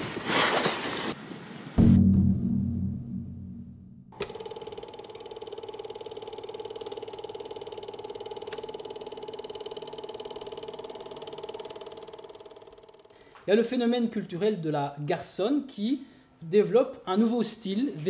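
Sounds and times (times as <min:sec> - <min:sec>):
deep boom: 0:01.8 - 0:04.2
film projector clattering: 0:04.2 - 0:13.2.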